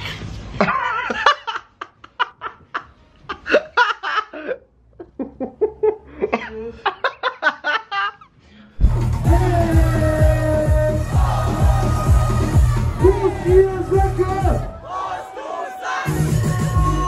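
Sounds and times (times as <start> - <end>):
young man laughing: 0.6 - 8.3.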